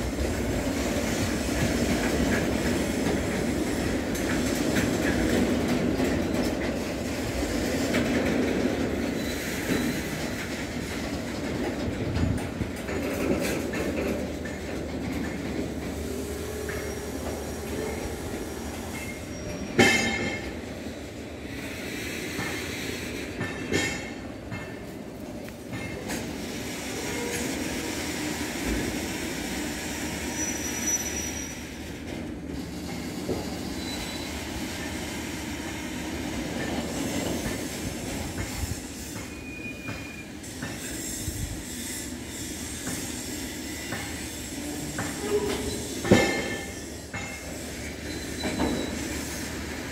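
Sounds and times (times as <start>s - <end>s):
rumble of steel wheels on rail: 0.0s - 49.9s
high wheel squeals: 9.1s - 10.4s, 15.9s - 20.6s, 29.8s - 32.0s, 32.8s - 34.9s, 38.5s - 49.5s.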